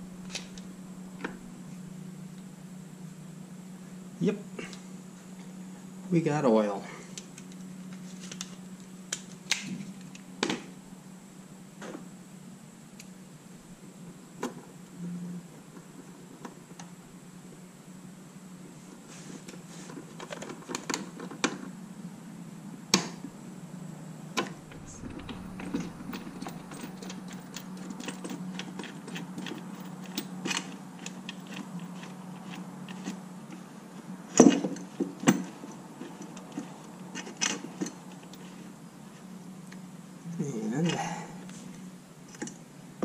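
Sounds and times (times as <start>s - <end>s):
steady low hum: 0.0s - 20.1s, 21.6s - 43.0s.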